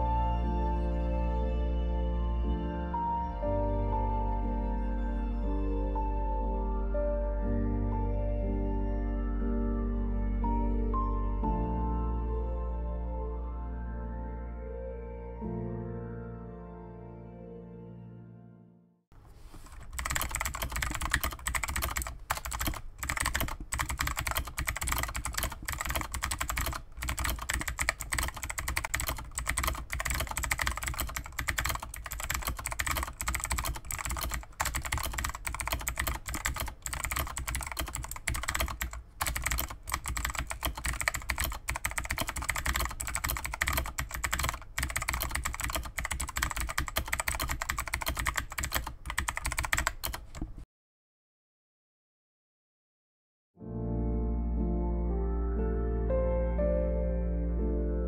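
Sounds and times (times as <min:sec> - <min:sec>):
fast mechanical keyboard typing: 0:19.6 - 0:50.6.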